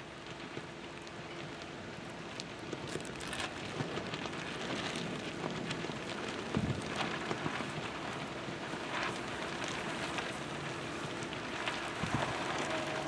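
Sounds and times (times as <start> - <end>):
fine crackling: 2.2 - 13.0
strong wind blowing: 11.9 - 13.0.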